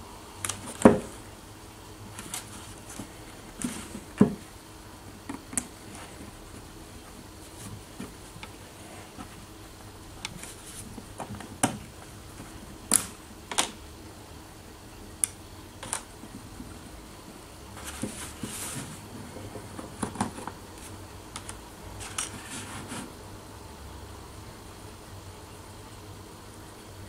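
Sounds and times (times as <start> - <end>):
steady low hum: 0.0 - 27.0
soft rustling: 2.0 - 12.8, 16.2 - 23.2.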